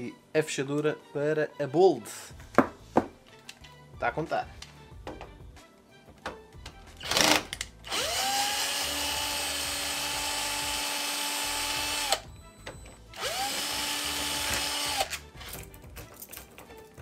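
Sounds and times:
cordless drill whining: 0:07.0 - 0:15.2.

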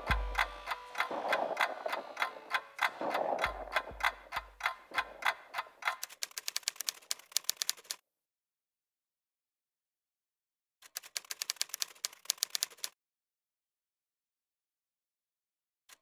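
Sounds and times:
typewriter key clicks: 0:04.0 - 0:08.0, 0:10.9 - 0:12.9.

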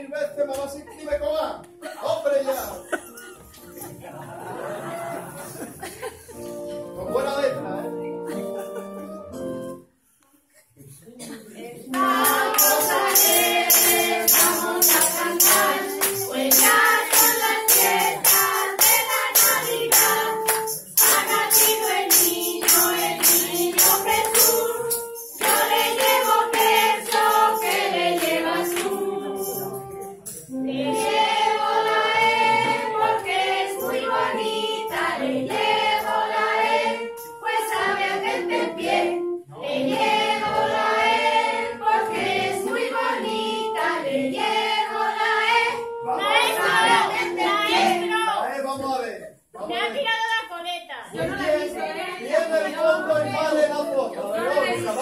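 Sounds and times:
group singing: 0:04.1 - 0:05.7, 0:11.4 - 0:48.5, 0:51.1 - 0:55.0
rhythmic hand claps: 0:11.9 - 0:30.6, 0:31.7 - 0:39.1, 0:39.9 - 0:48.0.

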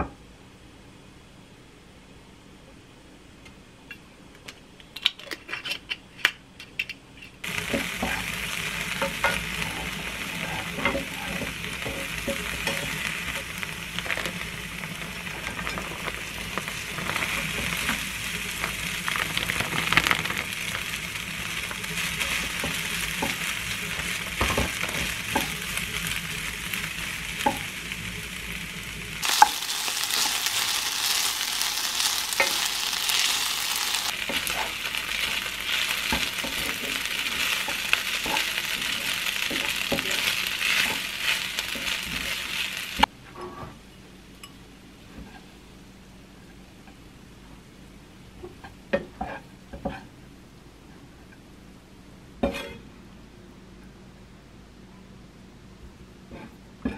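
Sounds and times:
rice sizzling in a frying pan: 0:07.4 - 0:43.1.

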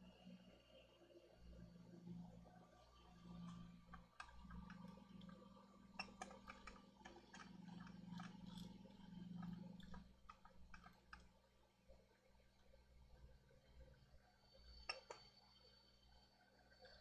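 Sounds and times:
faint small clicks: 0:03.2 - 0:11.4, 0:14.6 - 0:15.4.

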